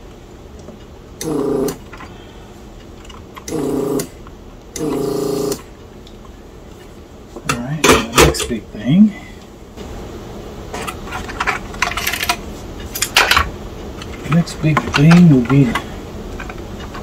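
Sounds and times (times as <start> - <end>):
desoldering pump buzzing: 1.2 - 2.4, 3.3 - 5.8.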